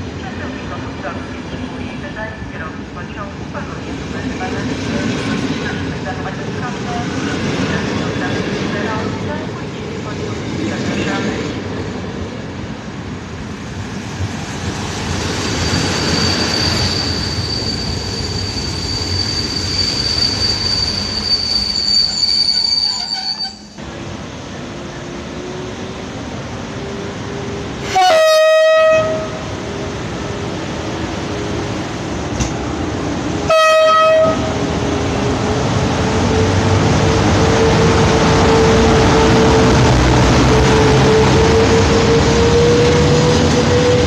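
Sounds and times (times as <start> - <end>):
train coaches squealing on rails: 14.9 - 23.8
locomotive horn blasts: 27.9 - 29.4, 33.5 - 34.4.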